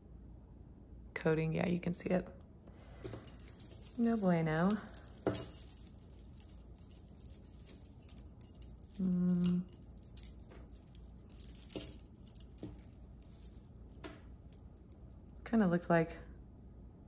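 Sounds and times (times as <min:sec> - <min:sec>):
jewelry beads and chains clinking: 0:03.0 - 0:15.4.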